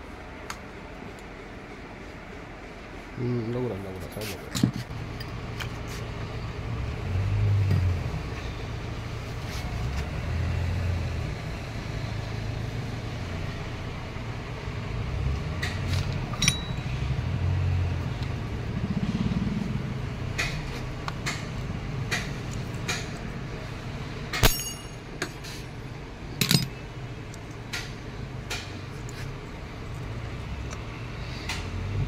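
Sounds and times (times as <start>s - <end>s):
low rumble of motor vehicles: 0.0s - 32.0s
metal hand tools clinking: 16.3s - 16.9s, 24.4s - 25.5s, 26.4s - 26.8s.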